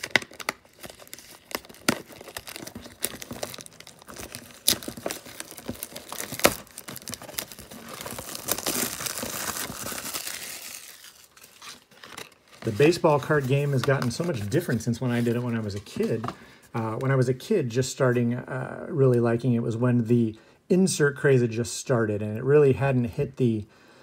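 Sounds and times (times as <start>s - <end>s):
plastic wrap crinkling and tearing: 0.0s - 16.2s.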